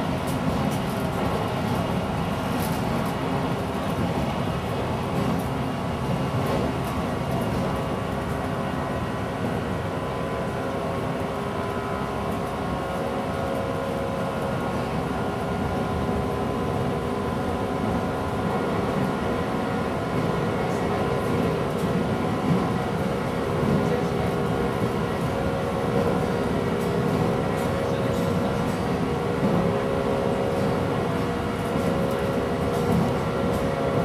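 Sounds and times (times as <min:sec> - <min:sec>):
train wheels rumbling on rail: 0:00.0 - 0:34.0.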